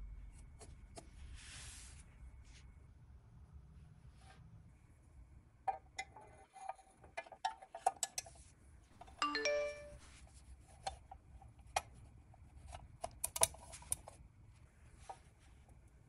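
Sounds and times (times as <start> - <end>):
metal toy parts clicking and tapping: 13.0 - 14.1.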